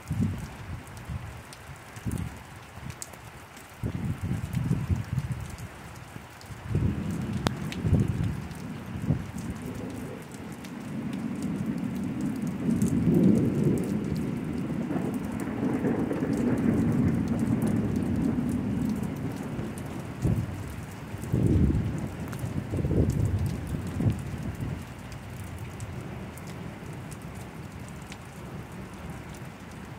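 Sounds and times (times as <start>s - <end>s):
steady rain: 0.0s - 29.9s
rolling thunder rumble: 6.5s - 29.9s.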